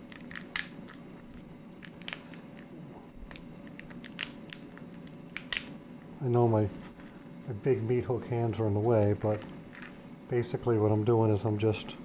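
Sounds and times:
lobster shell crackling: 0:00.0 - 0:05.7.

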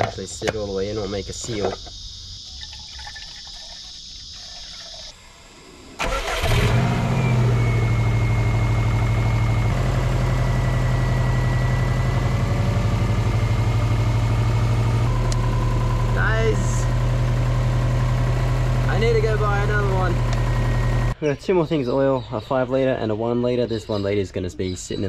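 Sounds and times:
car engine starting and idling: 0:06.0 - 0:21.2.

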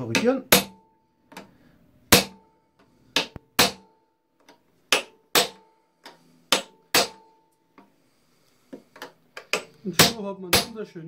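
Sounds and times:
hammer strikes on metal ringing: 0:00.1 - 0:00.9, 0:02.1 - 0:02.4, 0:03.2 - 0:04.0, 0:04.9 - 0:05.7, 0:06.5 - 0:07.4, 0:10.0 - 0:10.8.

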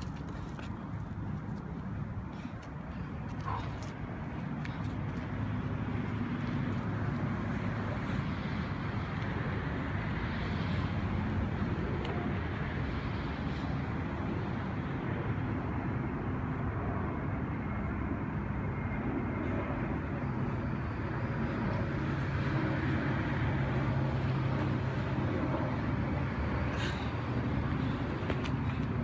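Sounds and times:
low outdoor rumble: 0:00.0 - 0:29.0.

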